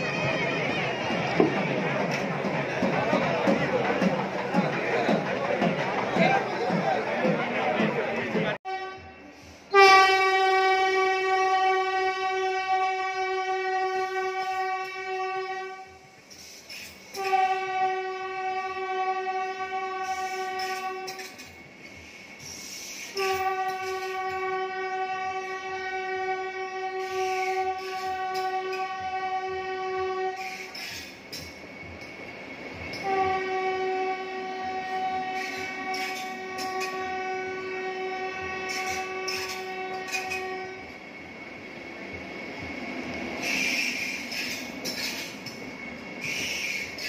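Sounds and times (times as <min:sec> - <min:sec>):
train rumbling: 0:00.0 - 0:47.0
train horn blasts: 0:08.7 - 0:16.2, 0:17.1 - 0:21.6, 0:22.6 - 0:31.2, 0:32.9 - 0:41.2, 0:43.1 - 0:47.0.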